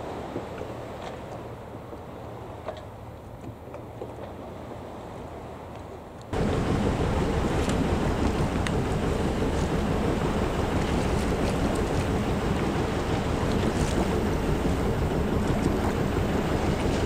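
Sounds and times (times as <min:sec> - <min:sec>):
wind buffeting microphone: 0:06.3 - 0:17.0.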